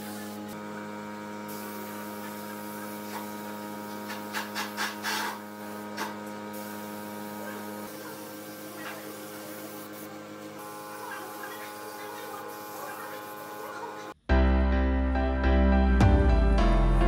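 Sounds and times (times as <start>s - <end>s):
spray gun hissing: 0.0s - 0.6s, 1.4s - 14.2s
machine hum: 0.0s - 14.2s.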